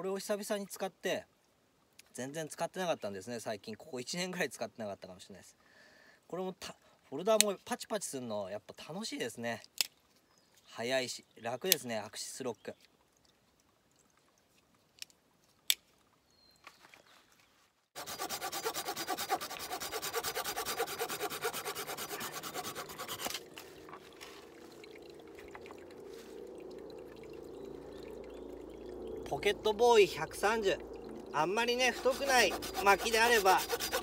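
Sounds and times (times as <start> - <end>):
saw rasping through branch: 18.0 - 24.4, 31.4 - 34.0.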